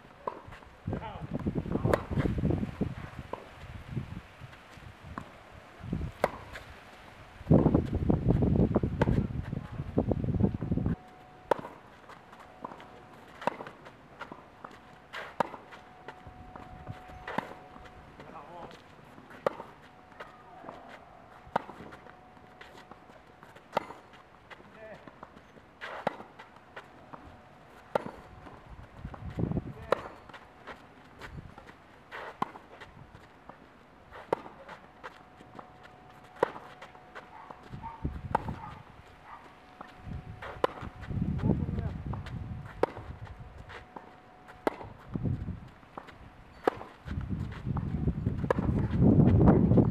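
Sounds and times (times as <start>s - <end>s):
tennis ball struck with rackets: 0.2s - 2.3s, 6.1s - 6.7s, 11.4s - 11.8s, 12.4s - 25.2s, 25.8s - 26.4s, 27.8s - 30.8s, 34.1s - 45.1s, 46.0s - 49.0s
footsteps on clay: 6.0s - 49.9s.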